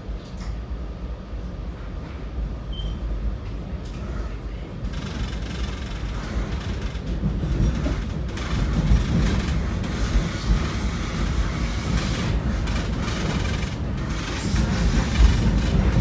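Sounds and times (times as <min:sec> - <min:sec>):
train rumbling on rails: 0:00.0 - 0:16.0
train wheels rattling: 0:04.8 - 0:16.0.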